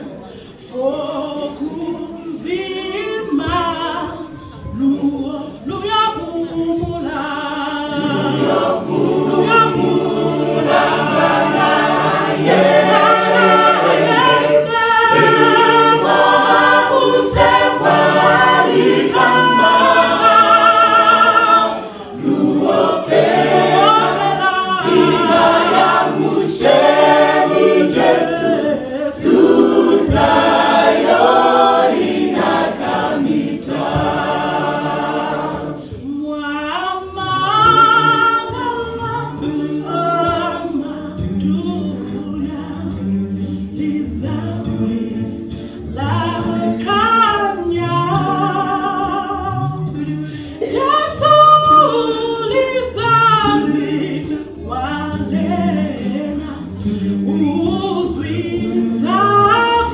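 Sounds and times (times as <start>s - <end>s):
choir singing in harmony: 0.0s - 59.9s.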